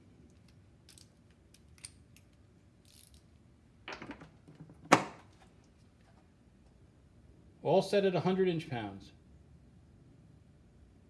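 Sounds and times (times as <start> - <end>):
faint small metal clicks: 0.2 - 3.3.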